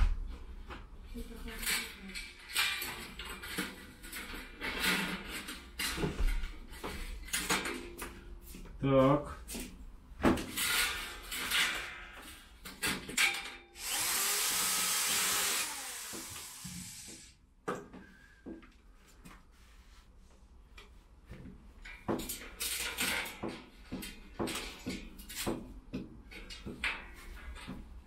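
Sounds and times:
electric drill boring into wall: 13.8 - 17.3.

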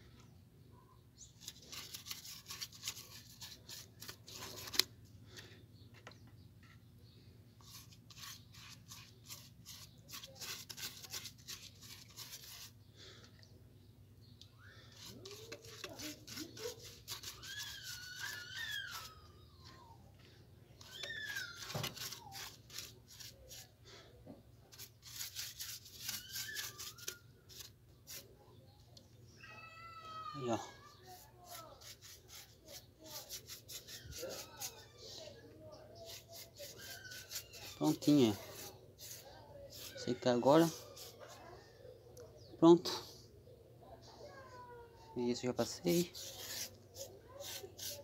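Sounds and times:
paintbrush scraping cement: 1.4 - 4.9, 7.6 - 12.8, 14.8 - 19.3, 20.8 - 23.8, 24.7 - 28.3, 30.9 - 41.6, 45.3 - 48.0.

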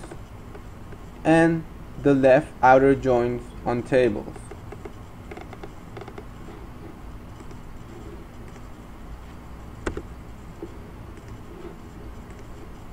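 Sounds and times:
low room tone hum: 0.0 - 12.9
computer mouse clicks: 4.4 - 6.3, 7.3 - 7.6, 8.4 - 8.7, 9.8 - 12.8.

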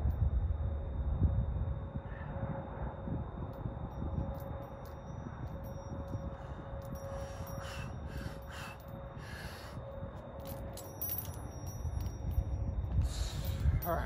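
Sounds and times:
light clicks and clinks: 3.5 - 14.0.

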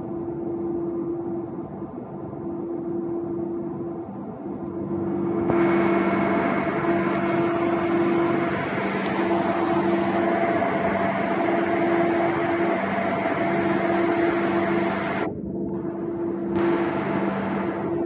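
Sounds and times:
whining machine tone: 4.5 - 18.0
deck machinery humming: 4.7 - 18.0.

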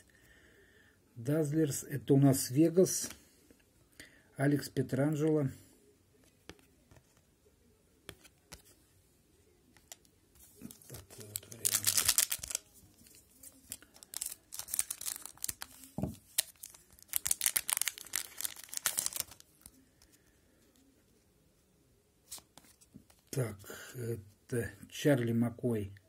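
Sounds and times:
plastic foil wrapper crinkling: 10.6 - 19.8.

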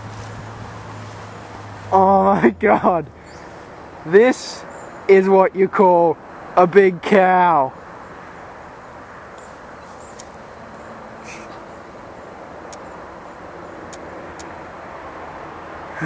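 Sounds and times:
outdoor background hiss: 0.0 - 16.0
faint high clicks: 9.3 - 10.4, 12.7 - 12.9, 13.9 - 14.5.

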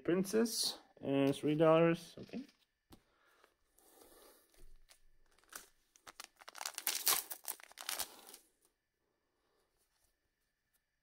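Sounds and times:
wrapper tearing and crinkling: 4.9 - 8.4.

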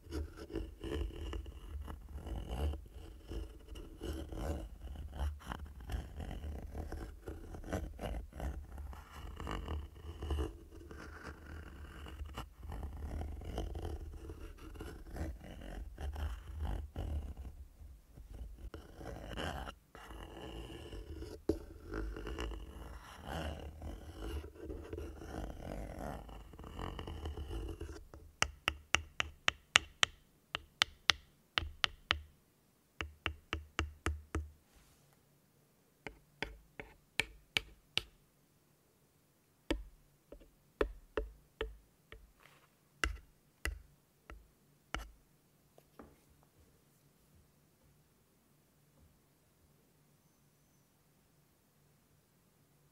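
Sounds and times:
tool scraping microphone grille: 0.0 - 28.2.

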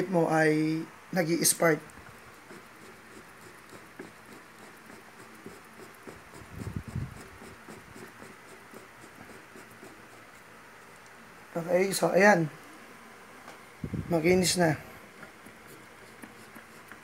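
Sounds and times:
sandpaper scratching on metal: 2.5 - 10.5.

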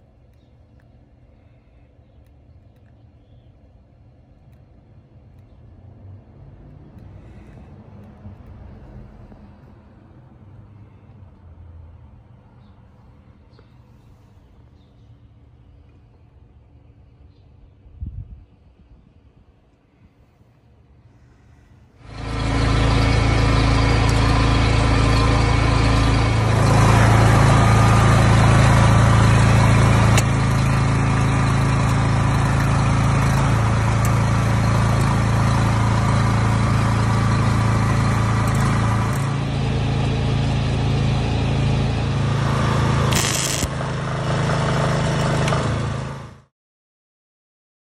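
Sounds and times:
cooling fan: 15.2 - 46.4
welder electrical hum: 22.0 - 46.5
welding arc hissing: 43.0 - 43.8.

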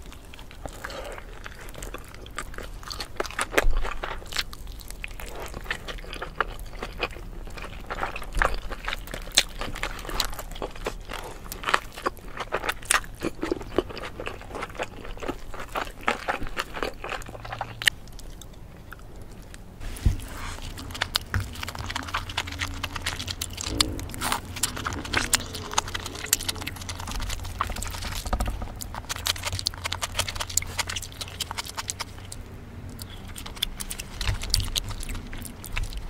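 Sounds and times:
chewing with wet mouth smacks: 0.0 - 36.0
low steady hum: 0.0 - 36.0.

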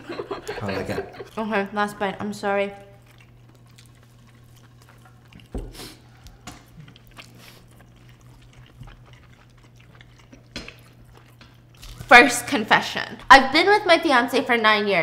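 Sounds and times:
people chewing: 0.0 - 13.3
steady low hum: 0.0 - 15.0.

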